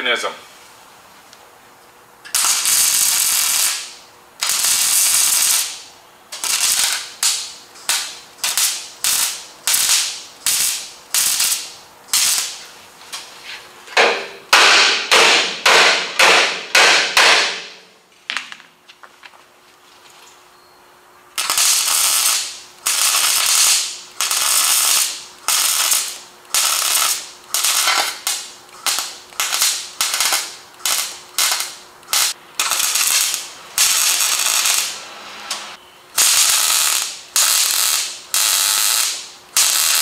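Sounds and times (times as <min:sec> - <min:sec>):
welder welding bursts: 0:02.2 - 0:12.7, 0:21.4 - 0:40.0.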